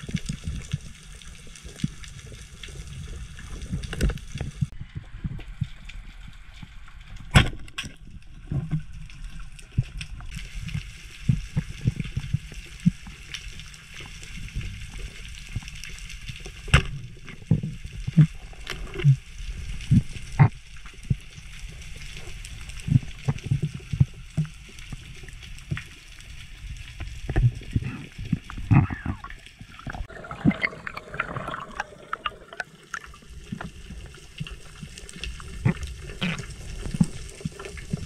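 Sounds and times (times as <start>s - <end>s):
underwater rumble of moving water: 0.0s - 38.0s
sharp underwater clicks and knocks: 3.5s - 6.0s, 6.6s - 13.4s, 16.5s - 19.2s.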